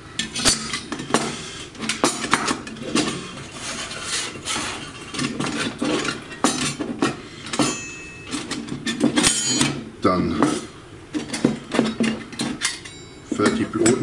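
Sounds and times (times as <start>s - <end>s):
sheet-metal panels clattering: 0.0s - 14.0s.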